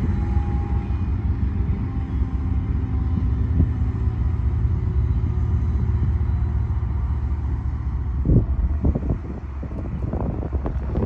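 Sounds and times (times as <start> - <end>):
diesel locomotive rumble: 0.0 - 11.0.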